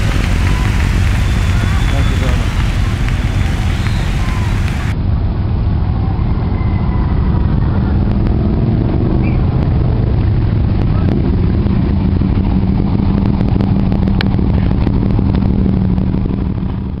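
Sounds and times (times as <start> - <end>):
motorcycles riding past: 0.0 - 5.0.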